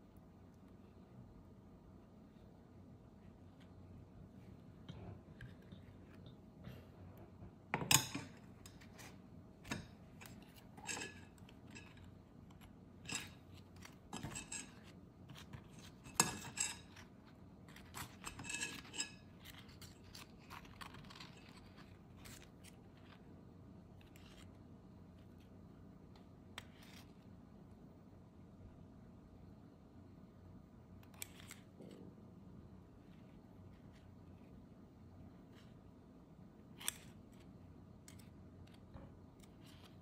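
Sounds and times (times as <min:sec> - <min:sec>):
kitchen utensils and dishes clinking: 0:09.7 - 0:12.1, 0:14.1 - 0:14.9, 0:15.8 - 0:17.1, 0:17.8 - 0:19.3.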